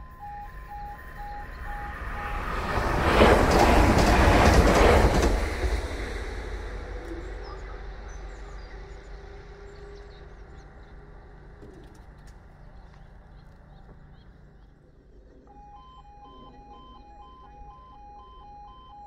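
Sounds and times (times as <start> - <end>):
bird chirps: 0.0 - 2.4
train wheels rushing on rail: 0.0 - 14.2
faint hum of crossing barriers: 0.0 - 19.0.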